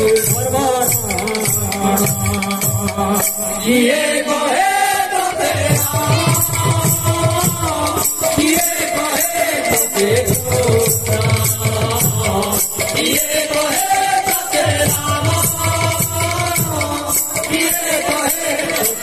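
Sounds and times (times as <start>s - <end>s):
jingling rattling percussion: 0.0s - 3.8s, 5.5s - 19.0s
hand drum beating: 5.7s - 8.9s.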